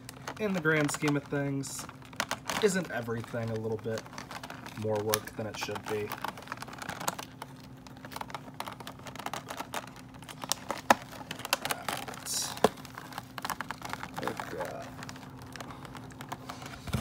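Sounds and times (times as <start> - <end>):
plastic packaging clicks and rustles: 0.0 - 17.0.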